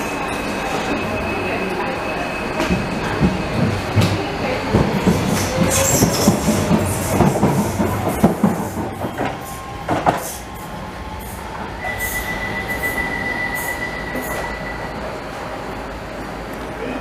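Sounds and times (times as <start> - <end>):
train wheels clattering over rail joints: 2.6 - 10.4
high-pitched wheel squeal: 11.8 - 15.2.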